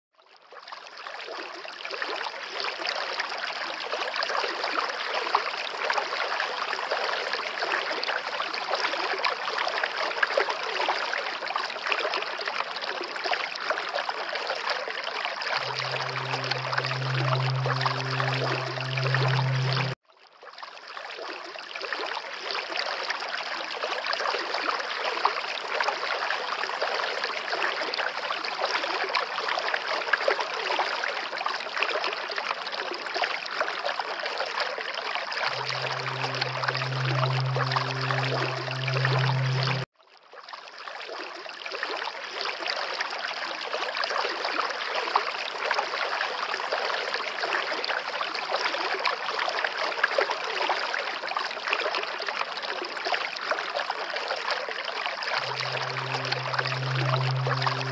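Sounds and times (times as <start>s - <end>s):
low hum: 15.6s - 20.0s, 35.5s - 39.9s, 55.4s - 57.9s
rushing trickling water: 35.5s - 39.9s, 52.6s - 57.9s.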